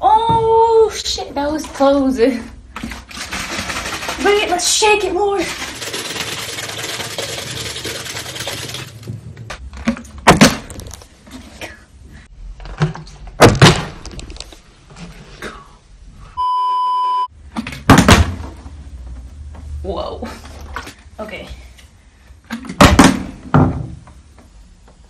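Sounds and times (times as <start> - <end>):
water bottle shaken: 2.7 - 9.1
electronic bleep: 16.4 - 17.3.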